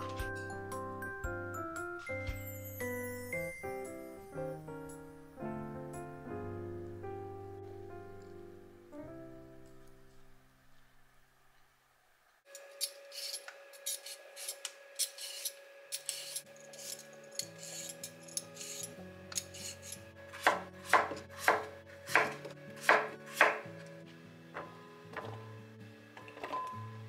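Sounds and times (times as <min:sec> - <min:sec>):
soft background music: 0:00.0 - 0:10.8, 0:16.7 - 0:27.0
peeler scraping potato: 0:12.6 - 0:23.5
knife chopping on wooden board: 0:20.4 - 0:23.6.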